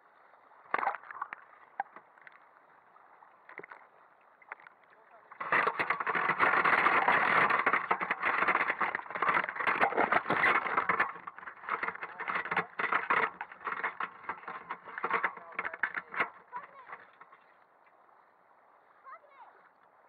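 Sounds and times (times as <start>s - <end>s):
water splashing and streaming: 0.0s - 20.0s
wire net frame knocking: 5.4s - 16.9s.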